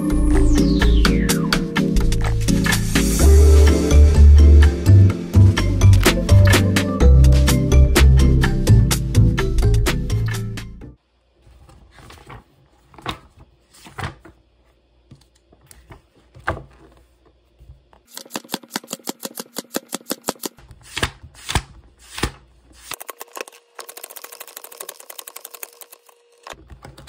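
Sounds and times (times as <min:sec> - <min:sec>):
book pages turning: 0:11.4 - 0:14.4.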